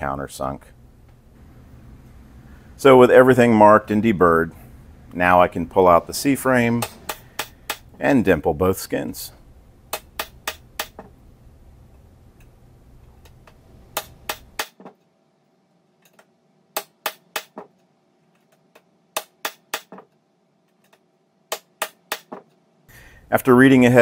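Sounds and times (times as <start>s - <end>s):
hammer striking metal tool: 6.8s - 7.9s, 9.9s - 11.1s.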